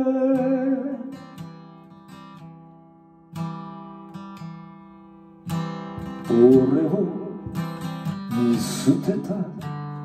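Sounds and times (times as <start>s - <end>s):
person singing: 0.0s - 1.2s, 6.2s - 7.5s, 8.3s - 9.6s
acoustic guitar strumming: 0.0s - 10.0s.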